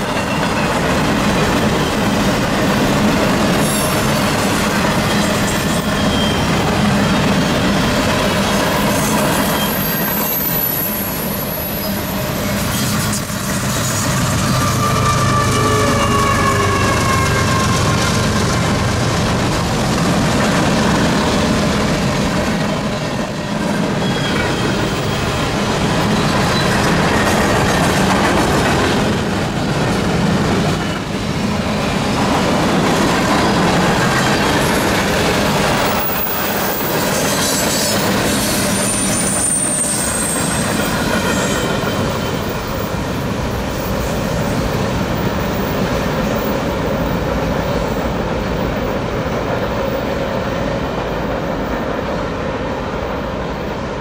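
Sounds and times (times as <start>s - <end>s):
train wheels rumbling on rails: 0.0s - 54.0s
high wheel squeal: 3.2s - 4.4s, 5.0s - 18.3s, 23.9s - 27.5s, 33.4s - 43.0s.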